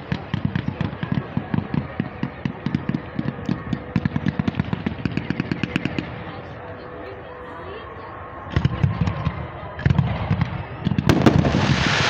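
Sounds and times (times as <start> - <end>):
fireworks rapid bangs: 9.8 - 12.0.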